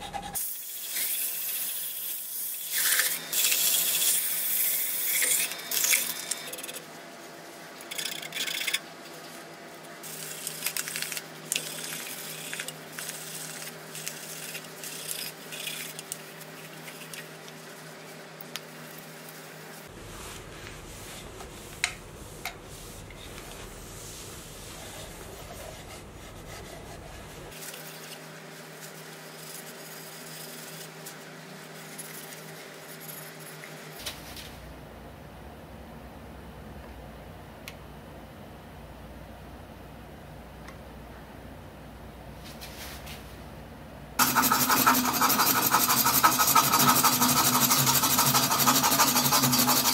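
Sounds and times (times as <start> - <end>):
cloth rubbing: 19.8 - 27.6
sanding hiss: 44.2 - 49.9
wood lathe humming: 44.2 - 49.9.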